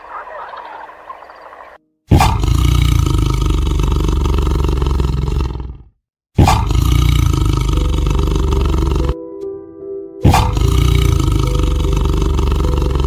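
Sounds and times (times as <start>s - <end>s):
tiger roaring: 2.1s - 9.2s, 10.2s - 13.0s.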